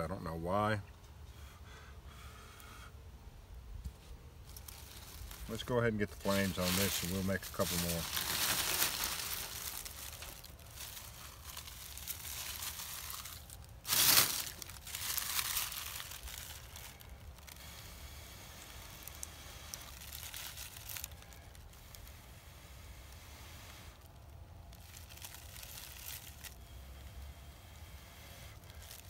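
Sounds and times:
dead leaves crunching: 4.4 - 22.2, 23.8 - 26.8, 28.6 - 29.0.

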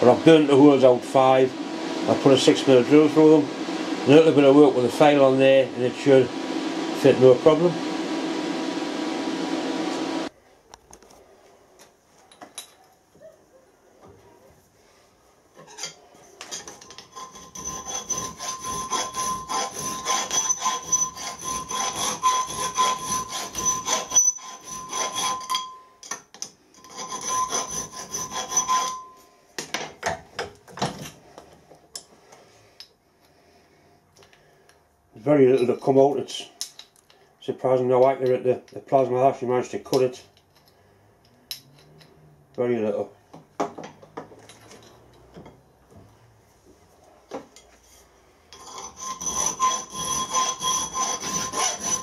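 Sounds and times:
hand file rasping on metal plate: 16.4 - 25.7, 26.8 - 29.2, 48.5 - 52.0
metal ringing tone: 23.6 - 26.1, 28.5 - 29.3.

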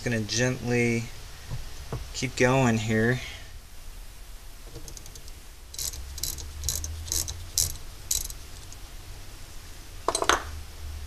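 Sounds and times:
metal clicks: 4.7 - 8.8
ratcheting wrench clicking: 4.8 - 8.8.

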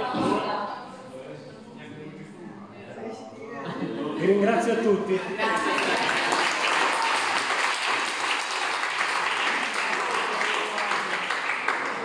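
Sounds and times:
crowd applauding: 5.4 - 12.0.

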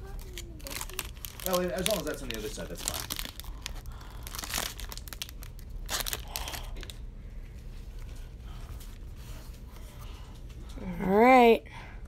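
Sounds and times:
foil wrapper crinkling and tearing: 0.0 - 7.0
packaging handling: 0.0 - 7.0.

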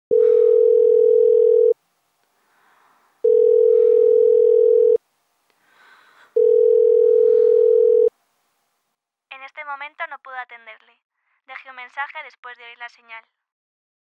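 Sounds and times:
telephone ringback tone: 0.1 - 1.8, 3.2 - 5.0, 6.4 - 8.1.

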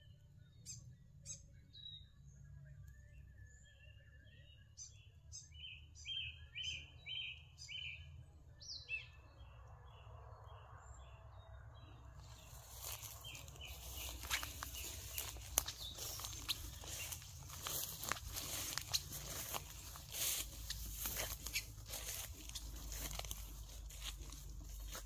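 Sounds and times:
bird chirping: 0.0 - 25.0
rustling through undergrowth: 12.2 - 25.0.

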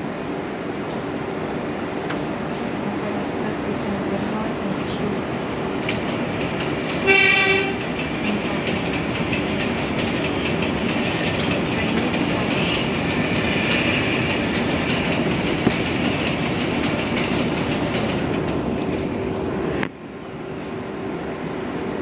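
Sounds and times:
train wheels clattering on rail: 5.7 - 20.0
train horn blast: 7.0 - 7.8
high wheel squeal: 10.8 - 15.6.

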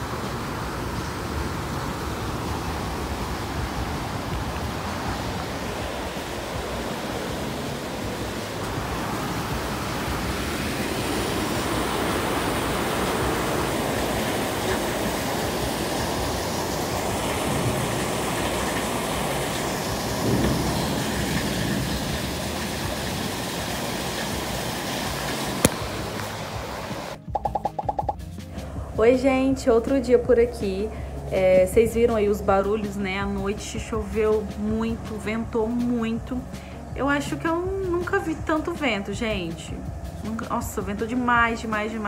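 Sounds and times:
heavy rain: 0.0 - 27.2
strong wind: 0.0 - 27.2.

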